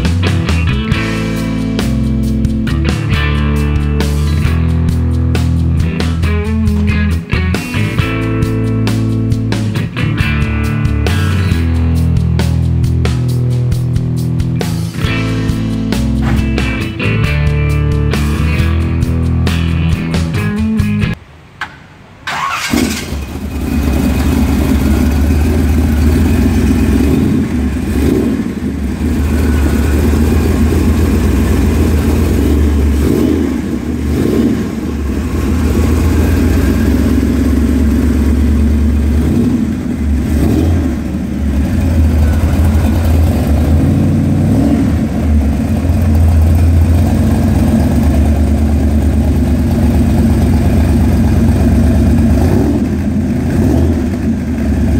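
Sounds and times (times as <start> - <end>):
car engine starting and revving: 22.2 - 54.9.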